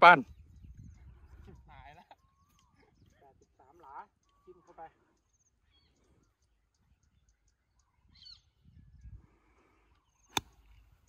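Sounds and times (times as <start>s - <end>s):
golf club striking ball: 10.3s - 10.7s.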